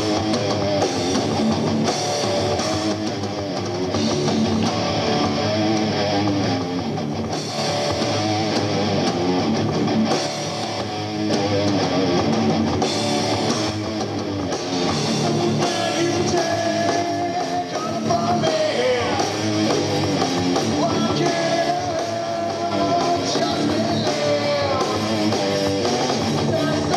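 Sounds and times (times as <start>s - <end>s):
bass guitar: 0.0s - 26.9s
drums: 0.0s - 26.9s
electric guitar: 0.0s - 26.9s
man singing into a microphone: 15.6s - 19.4s, 20.8s - 25.3s, 26.5s - 26.9s.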